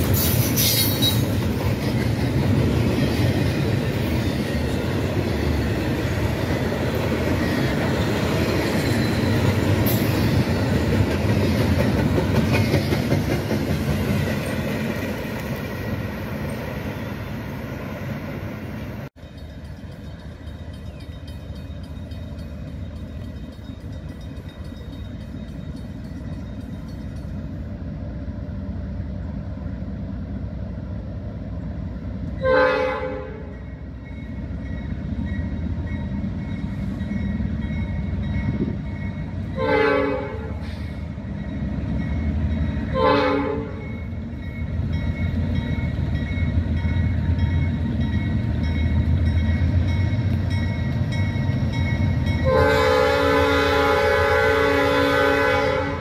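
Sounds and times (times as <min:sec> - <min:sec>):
train engines and cars rumbling: 0:00.0 - 0:56.0
train air horn blasts: 0:32.4 - 0:33.5, 0:39.6 - 0:41.0, 0:42.9 - 0:43.9, 0:52.4 - 0:56.0.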